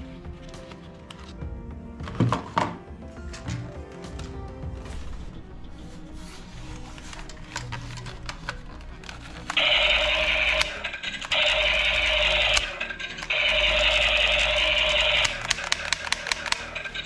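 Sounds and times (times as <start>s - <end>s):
toy gun buzzy firing effect: 9.6s - 17.0s
plastic clicks: 14.5s - 17.0s.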